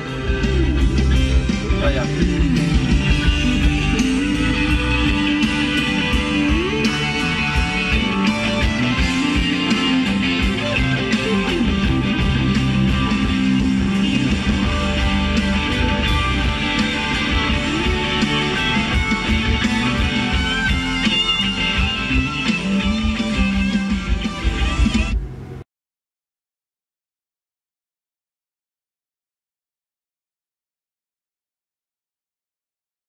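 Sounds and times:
guitar music through car speakers: 0.0s - 25.6s.

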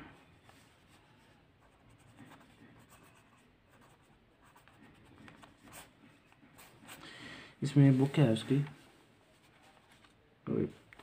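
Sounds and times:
pen scratching on paper: 1.6s - 7.0s.

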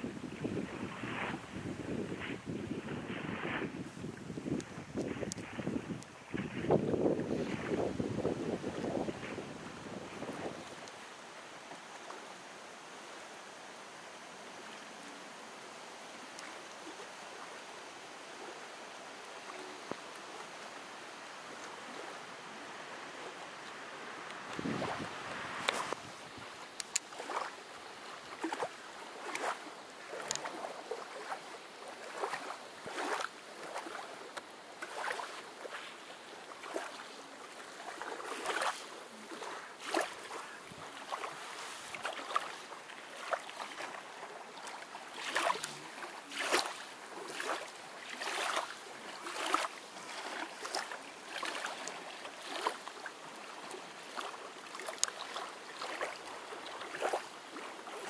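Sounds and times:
small waves lapping on shore: 0.0s - 58.0s
soft water splashes: 0.0s - 58.0s.

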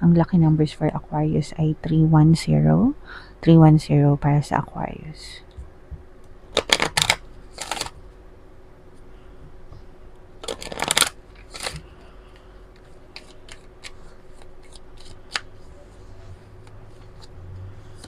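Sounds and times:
cards being riffle shuffled: 6.5s - 8.0s, 10.4s - 18.0s
cards sliding and clicking: 6.6s - 8.0s, 10.4s - 15.7s.

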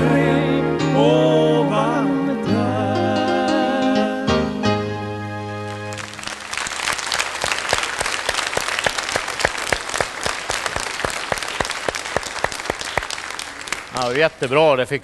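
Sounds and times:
audience applauding: 5.7s - 14.4s.

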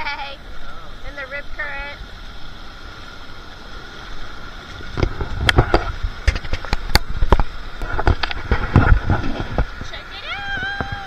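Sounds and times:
surf washing over sand: 0.0s - 11.0s
sharp thumps and crackles: 4.8s - 10.0s.

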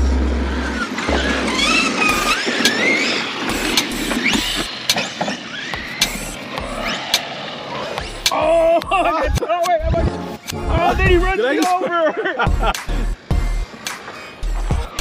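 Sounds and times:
electric rc truck motors whining: 0.0s - 9.4s, 12.8s - 15.0s.

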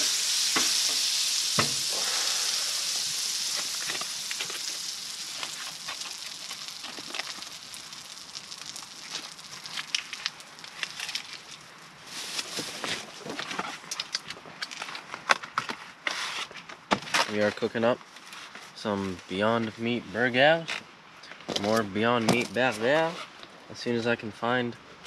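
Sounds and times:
butter sizzling in a frying pan: 0.0s - 12.5s
sharp crackles: 0.0s - 14.9s.

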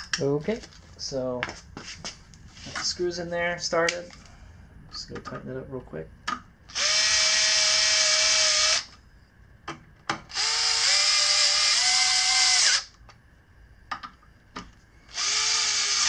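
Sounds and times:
cordless screwdriver running: 6.7s - 8.9s, 10.3s - 12.9s, 15.1s - 16.0s.

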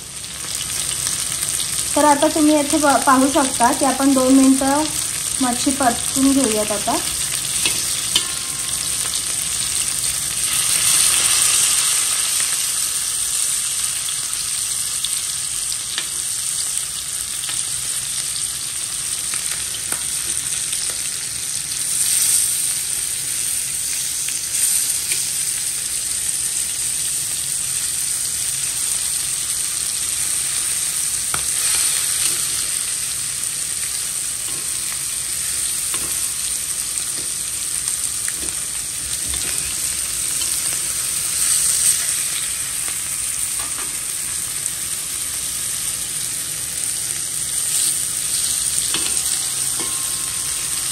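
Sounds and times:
fish sizzling in hot oil: 0.0s - 50.9s
metal spatula scraping a pan: 7.1s - 12.1s.

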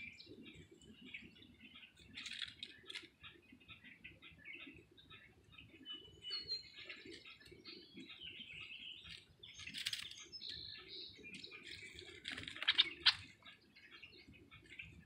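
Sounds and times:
songbirds chirping: 0.0s - 15.0s
dry reeds crackling: 2.1s - 3.1s, 9.0s - 13.4s.

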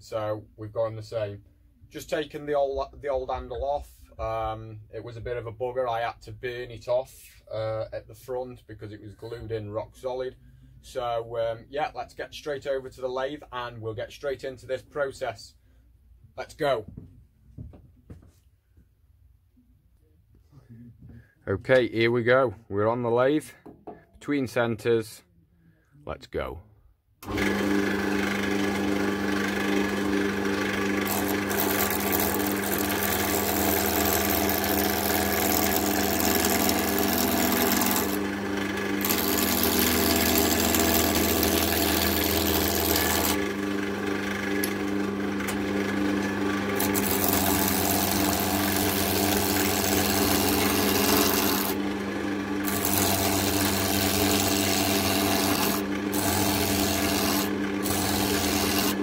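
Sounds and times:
turning tool scraping wood: 27.2s - 59.0s
wood lathe motor hum: 27.2s - 59.0s.

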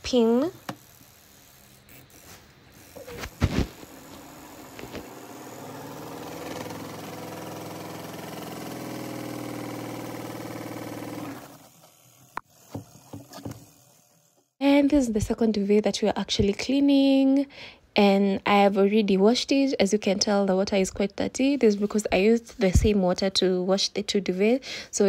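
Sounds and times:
washing machine spin motor: 0.0s - 14.5s.

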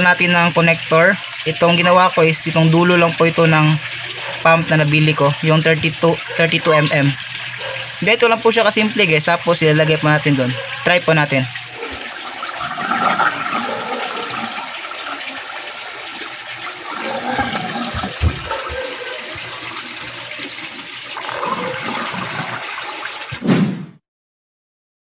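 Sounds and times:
water rushing and swirling: 11.6s - 23.4s.

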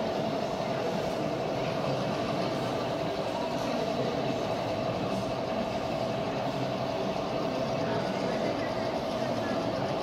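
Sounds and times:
model train humming: 0.0s - 10.0s.

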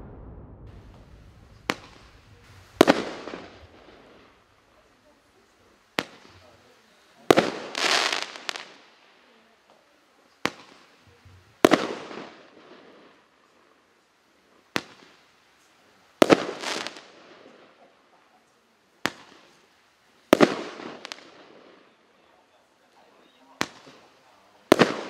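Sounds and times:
roman candle shot pop: 0.0s - 3.8s
firework bursting bang: 0.0s - 4.8s, 6.0s - 6.6s, 7.2s - 8.8s, 10.4s - 12.8s, 20.3s - 21.5s, 23.6s - 25.0s
firework crackling: 0.0s - 17.8s, 19.0s - 22.2s, 22.8s - 25.0s.

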